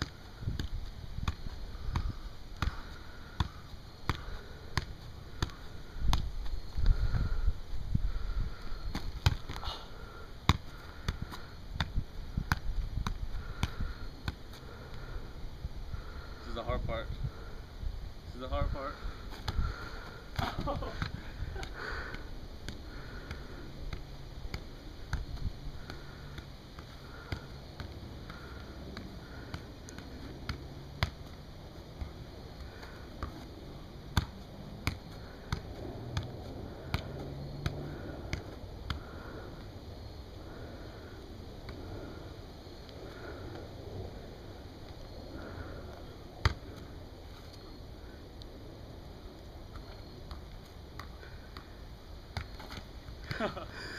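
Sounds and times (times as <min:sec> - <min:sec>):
dull touches of soccer ball: 0:00.0 - 0:07.0, 0:08.1 - 0:09.7, 0:10.4 - 0:15.1, 0:19.3 - 0:33.5, 0:34.1 - 0:39.7.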